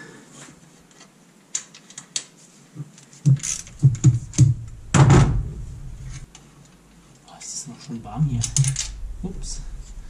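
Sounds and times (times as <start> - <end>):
hand tools clicking and knocking: 3.3 - 4.6.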